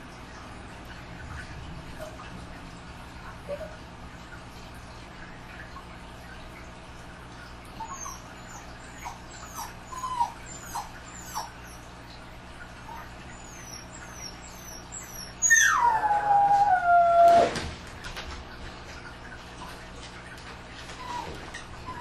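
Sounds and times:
dog whimpering: 3.4s - 3.8s, 7.8s - 11.9s, 12.8s - 17.5s, 21.0s - 22.0s
dog howling: 12.9s - 17.6s.

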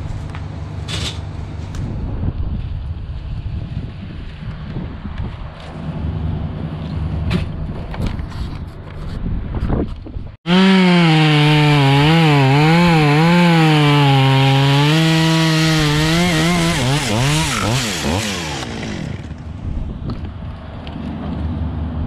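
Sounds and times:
chainsaw cutting through wood: 10.5s - 19.4s.

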